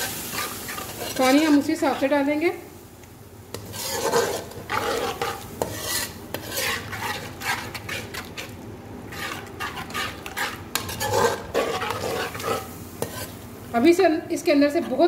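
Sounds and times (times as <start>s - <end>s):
masala sizzling: 0.0s - 15.0s
metal spoon scraping a pot: 0.3s - 2.1s, 3.5s - 8.5s, 9.1s - 13.4s.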